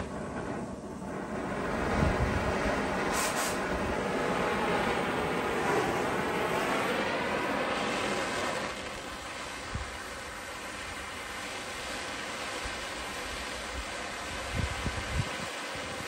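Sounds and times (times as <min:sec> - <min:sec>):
torch flame blowing: 0:00.0 - 0:16.0.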